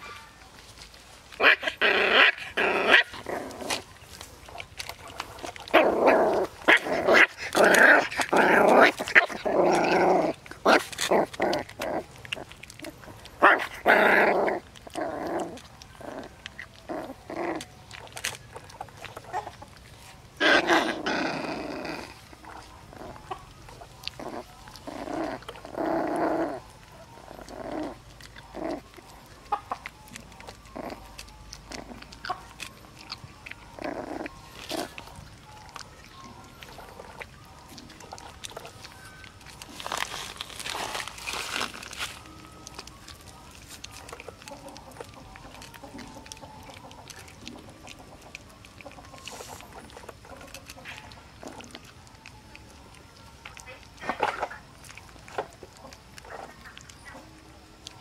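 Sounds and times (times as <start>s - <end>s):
puppies chewing: 0.0s - 58.0s
puppies growling: 0.8s - 58.0s.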